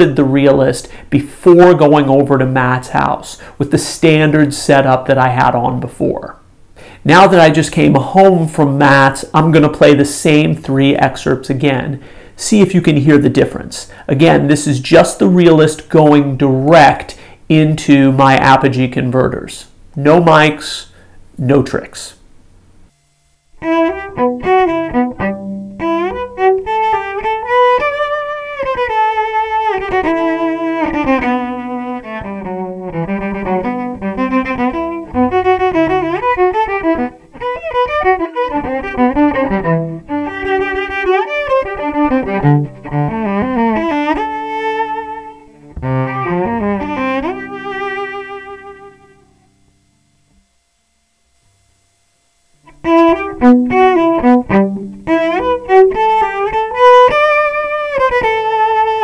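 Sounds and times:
bowed cello melody: 0:23.5 - 0:50.3, 0:52.6 - 0:59.0.

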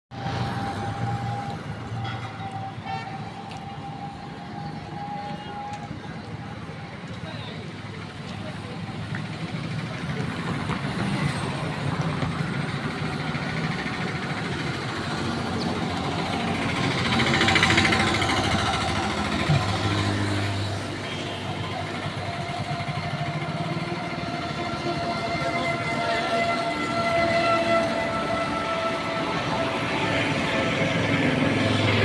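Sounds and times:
vehicle engines running: 0:00.1 - 0:32.0
vehicle passing: 0:15.3 - 0:21.0.

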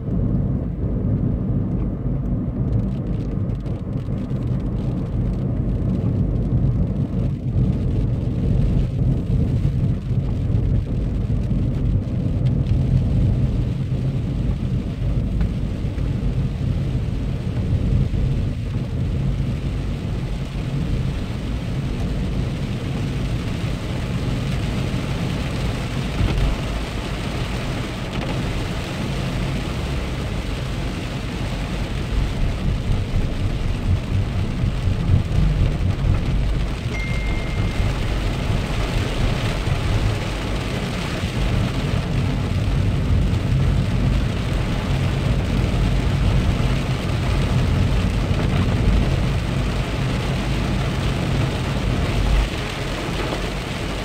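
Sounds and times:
car engine and tyre rumble: 0:00.0 - 0:54.0
rain on windscreen: 0:00.0 - 0:54.0
high beep: 0:36.9 - 0:38.2.

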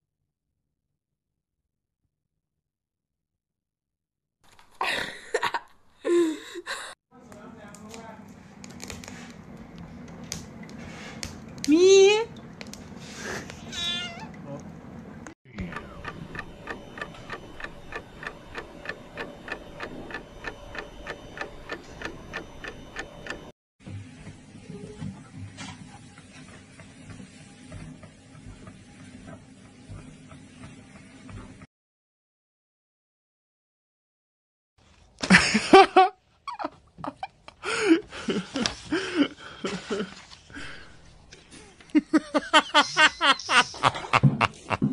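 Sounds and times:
cat meowing: 0:13.6 - 0:14.4
clock ticking: 0:15.5 - 0:23.5.

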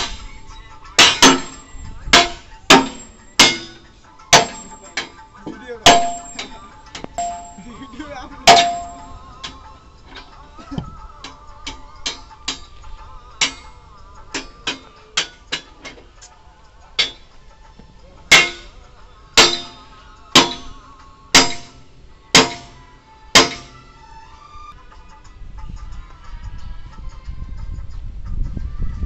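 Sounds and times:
metal clanging on steel: 0:00.0 - 0:24.4
faint background music: 0:00.0 - 0:29.0.

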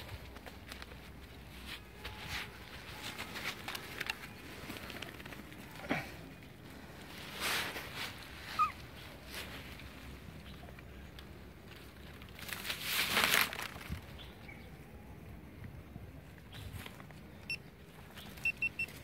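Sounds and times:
animal squeaks: 0:08.4 - 0:08.8.

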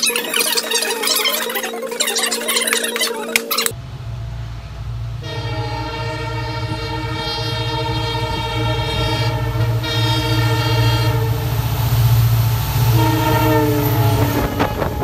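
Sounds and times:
locomotive horn: 0:05.2 - 0:11.7, 0:12.8 - 0:15.0.

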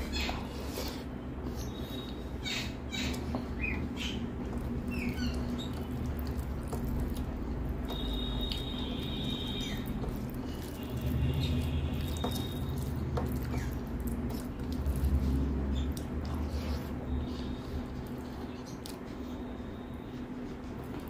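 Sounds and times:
rice squelching by hand: 0:00.0 - 0:19.5
wet chewing and mouth smacks: 0:03.1 - 0:19.2.

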